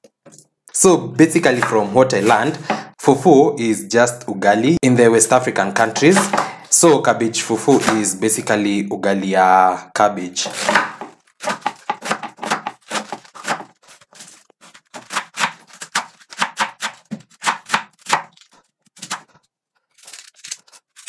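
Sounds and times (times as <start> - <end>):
knife chopping cabbage on wood: 1.4 - 2.9, 5.8 - 6.7, 7.6 - 8.4, 10.4 - 18.4.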